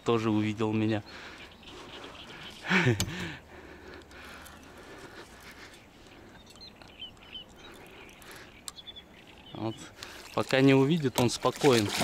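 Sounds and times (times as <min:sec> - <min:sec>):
faint bird chirps: 0:00.7 - 0:03.3, 0:04.4 - 0:11.3.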